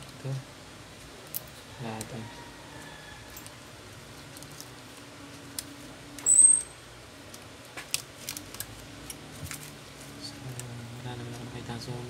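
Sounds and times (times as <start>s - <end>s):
shrill high-pitched squeak: 6.2s - 6.8s.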